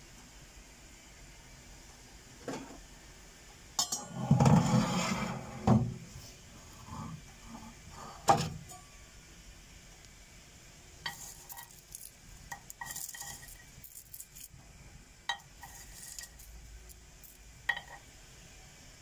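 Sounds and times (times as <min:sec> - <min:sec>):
nuts rattling in steel bowl: 0:11.1 - 0:14.6, 0:15.6 - 0:18.0.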